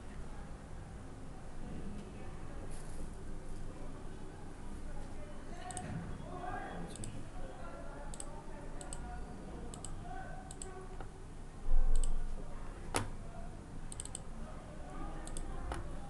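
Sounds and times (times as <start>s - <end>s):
computer mouse buttons clicking: 8.1s - 9.1s, 9.7s - 11.1s, 11.9s - 12.2s, 13.9s - 14.3s, 15.2s - 15.8s.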